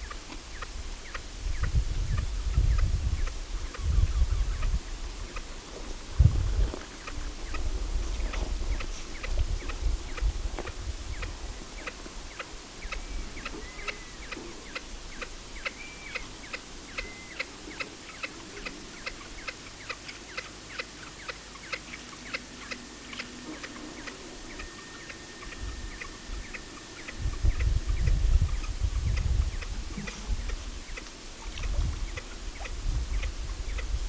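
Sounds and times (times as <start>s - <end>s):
bird chirps: 11.1s - 31.1s
thin steady whistle: 17.0s - 17.5s, 22.4s - 27.9s.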